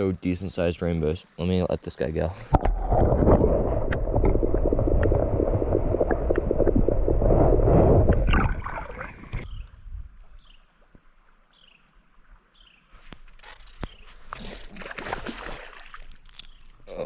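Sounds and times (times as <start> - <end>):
creek water sloshing and gurgling: 14.1 - 16.8.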